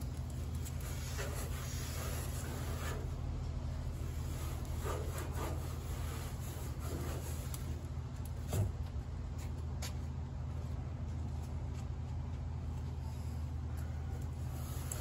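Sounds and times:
steady low hum: 0.0s - 15.0s
soft rubbing strokes: 0.4s - 7.9s.

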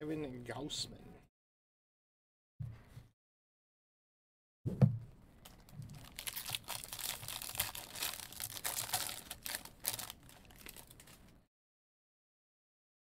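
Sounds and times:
foil wrapper tearing and crinkling: 5.5s - 11.3s.

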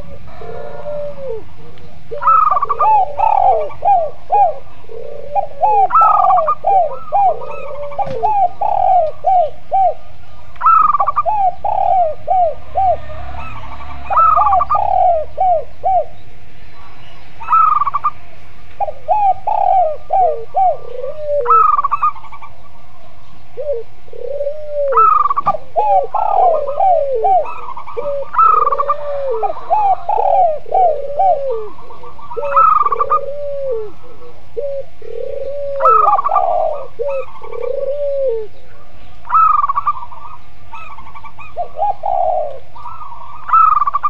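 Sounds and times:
doves cooing: 0.0s - 44.0s.

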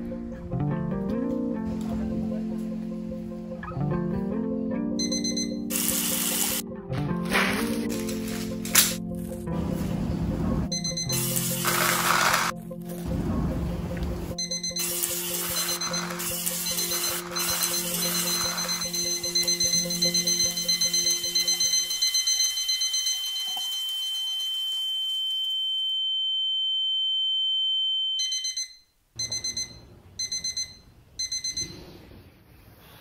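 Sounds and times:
alarm beeping: 5.0s - 6.6s, 10.7s - 12.5s, 14.3s - 31.9s
music with high held tone: 5.0s - 10.0s, 10.7s - 13.3s, 13.9s - 24.4s.

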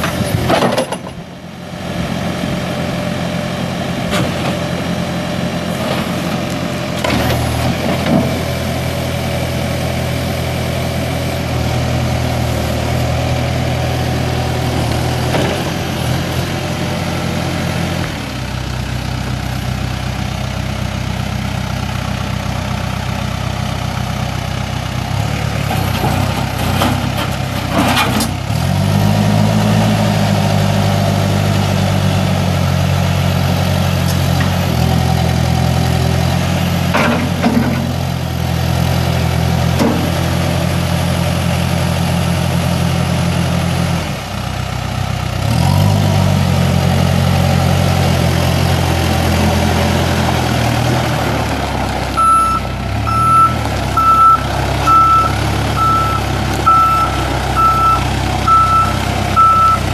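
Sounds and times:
diesel engine running: 0.0s - 59.9s
backup alarm beeping: 52.2s - 59.9s.

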